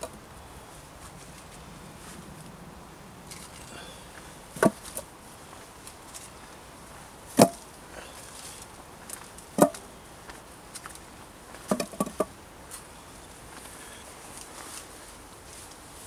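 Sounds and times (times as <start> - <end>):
wooden poles knocking: 4.6 - 5.1, 7.4 - 7.6, 9.6 - 9.8, 11.6 - 12.3.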